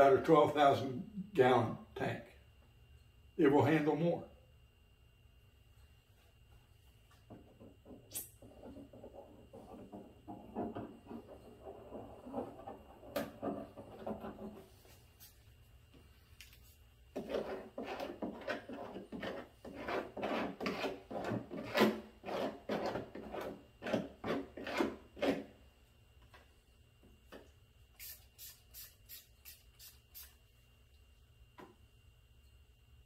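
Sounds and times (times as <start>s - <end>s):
hand tool rubbing strokes: 28.0s - 30.4s.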